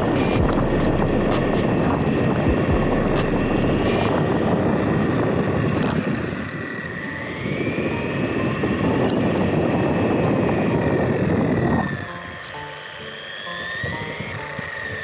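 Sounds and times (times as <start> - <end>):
electric motor whine: 0.0 - 15.0.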